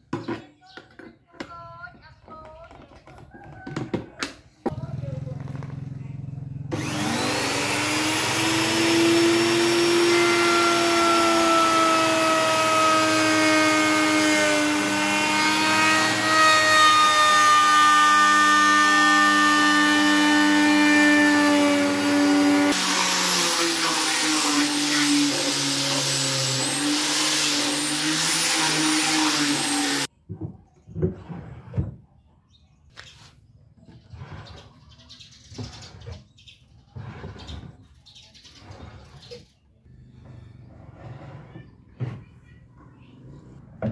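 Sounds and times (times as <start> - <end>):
electric router motor whine: 6.7 - 30.1
orbital sander on wood: 6.7 - 30.1.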